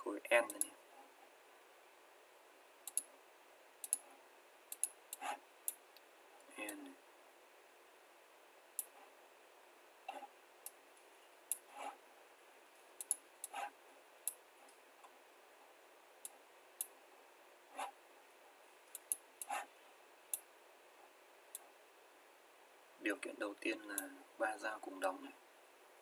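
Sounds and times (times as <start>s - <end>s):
faint steady hiss: 0.0s - 26.0s
computer mouse clicking: 0.5s - 0.7s, 2.8s - 3.1s, 3.8s - 6.1s, 11.5s - 12.0s, 13.0s - 13.7s, 18.9s - 19.7s.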